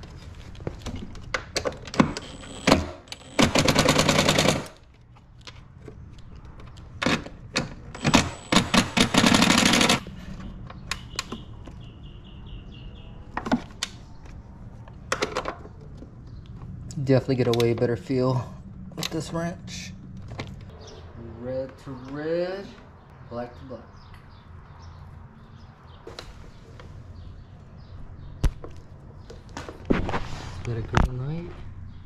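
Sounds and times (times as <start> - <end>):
impact driver rattling: 1.6 - 4.8, 7.0 - 10.0.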